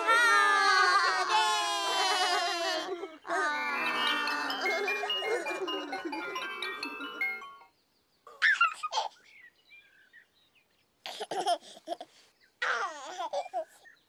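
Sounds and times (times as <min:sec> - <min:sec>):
baby giggling and babbling: 0:03.3 - 0:07.6
children's tune: 0:03.3 - 0:07.8.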